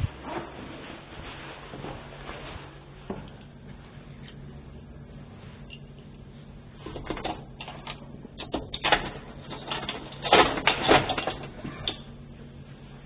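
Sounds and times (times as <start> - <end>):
amplifier hum: 1.8 - 10.2.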